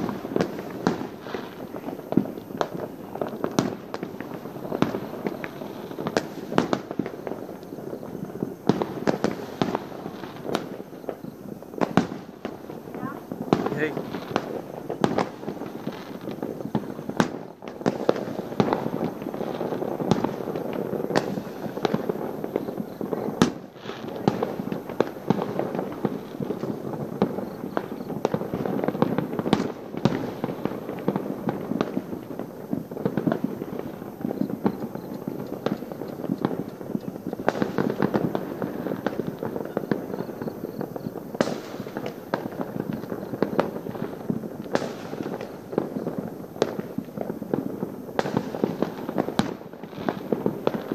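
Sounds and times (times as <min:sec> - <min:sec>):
fireworks bangs and crackles: 0:00.0 - 0:50.9
sharp firework reports: 0:11.9 - 0:17.3.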